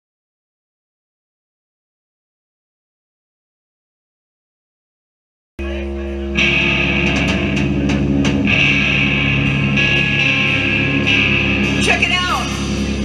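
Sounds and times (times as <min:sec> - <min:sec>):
distorted electric guitars droning: 0:05.6 - 0:13.0.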